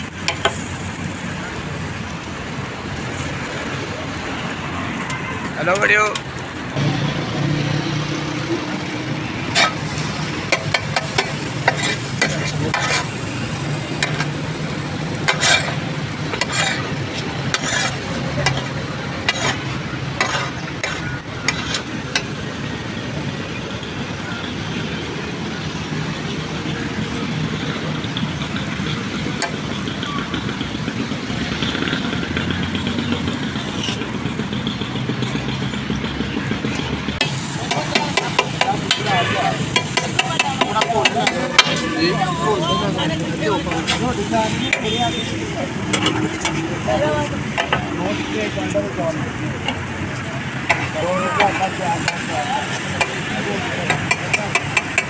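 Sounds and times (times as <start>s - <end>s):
eggs sizzling on a griddle: 0.0s - 2.4s, 7.4s - 22.5s, 37.2s - 55.0s
street traffic: 0.0s - 55.0s
metal spatula clicking and scraping: 9.5s - 13.3s, 14.0s - 14.4s, 15.2s - 22.3s.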